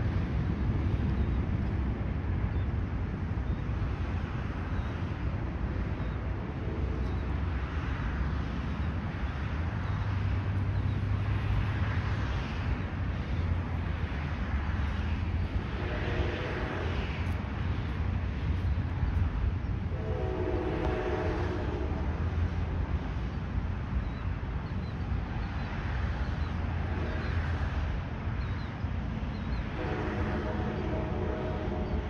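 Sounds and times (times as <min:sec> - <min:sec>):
jet engines rumbling: 0:00.0 - 0:32.0.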